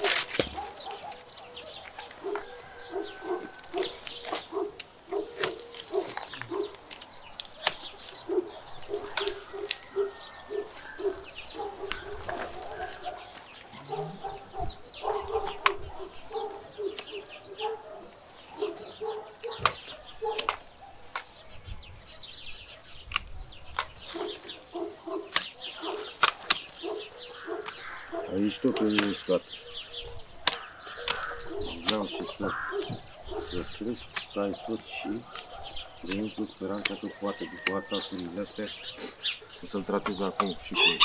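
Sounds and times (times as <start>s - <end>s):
pruning shears snipping: 0.0s - 1.2s, 1.8s - 14.5s, 19.4s - 21.4s, 23.1s - 29.4s, 30.3s - 33.0s, 33.8s - 40.7s
small birds chirping: 0.0s - 41.0s
chickens clucking: 30.4s - 41.0s.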